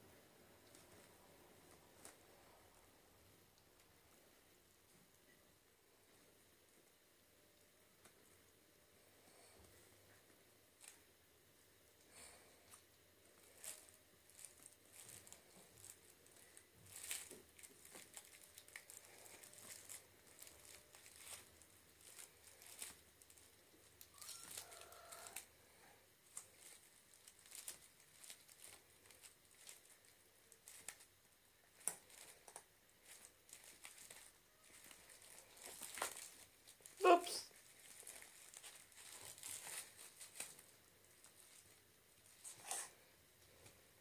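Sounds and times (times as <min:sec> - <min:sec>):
kittens scrambling on fabric mat: 0:31.8 - 0:43.0.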